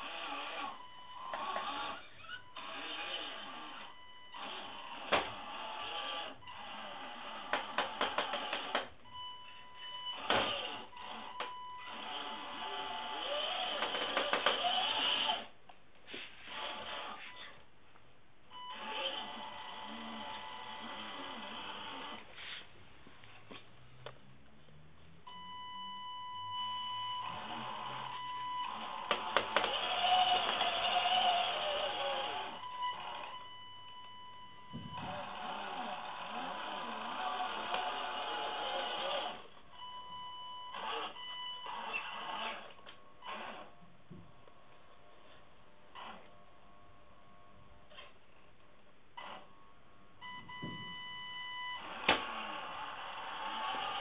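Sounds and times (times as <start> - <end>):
rc truck motor whirring: 0.0 - 8.9, 10.1 - 15.5, 16.4 - 17.6, 18.5 - 22.3, 27.0 - 33.5, 34.6 - 39.6, 40.7 - 43.8, 45.9 - 46.3, 51.8 - 54.0
tyres clicking and knocking: 7.5 - 9.0
electric motor whine: 10.1 - 15.5, 27.1 - 33.5, 34.7 - 39.5.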